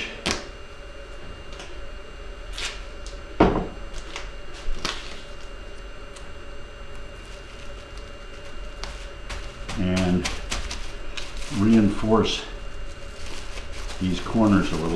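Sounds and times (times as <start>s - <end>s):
duct tape ripping: 4.0s - 5.3s.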